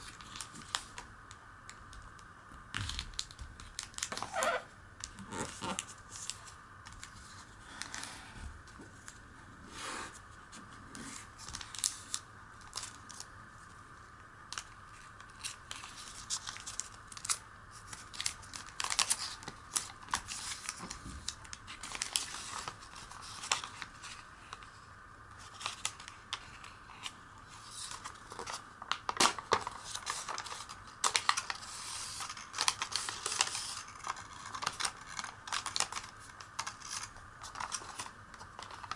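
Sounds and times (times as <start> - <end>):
paper rustling and crinkling: 14.9 - 24.7, 25.3 - 38.9.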